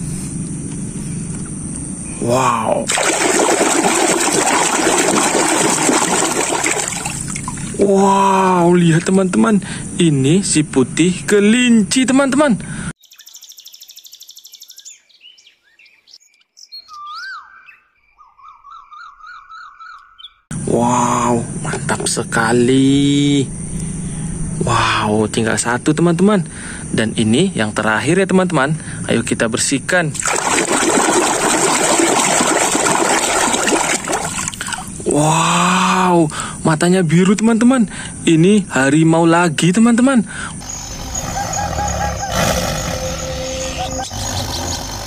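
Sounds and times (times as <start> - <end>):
water sloshing in a tub: 2.9 - 7.8, 30.2 - 35.1
birds chirping and whistling: 13.0 - 20.5, 40.6 - 45.0.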